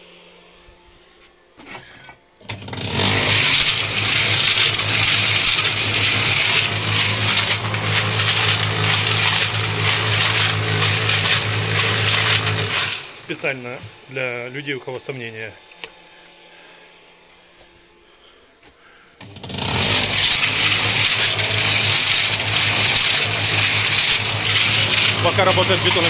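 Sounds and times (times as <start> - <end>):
concrete mixer motor hum: 0.0 - 26.0
concrete mixer drum churning: 2.4 - 14.6, 19.2 - 26.0.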